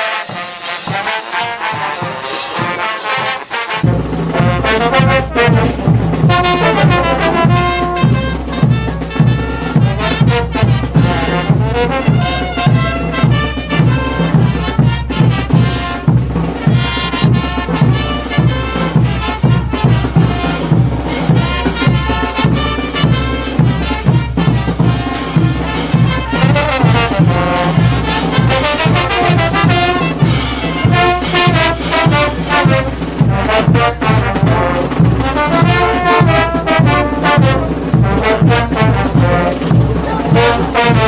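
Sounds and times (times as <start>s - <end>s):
brass band music: 0.0s - 41.0s.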